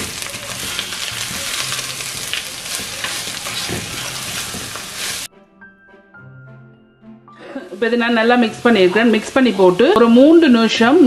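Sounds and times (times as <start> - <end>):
cabbage sizzling in a pot: 0.0 - 5.3, 7.6 - 11.0
wooden spoon scraping and rustling: 0.0 - 5.3
faint background music: 0.0 - 11.0.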